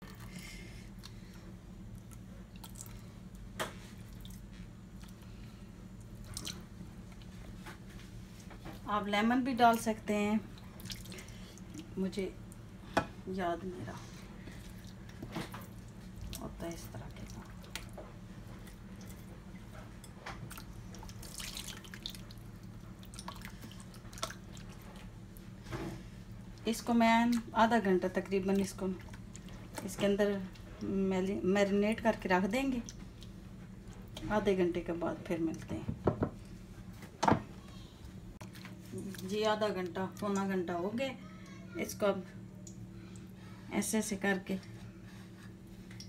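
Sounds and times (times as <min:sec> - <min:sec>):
steady low hum: 0:00.0 - 0:46.0
wet squishing of hand in marinade: 0:20.4 - 0:25.6.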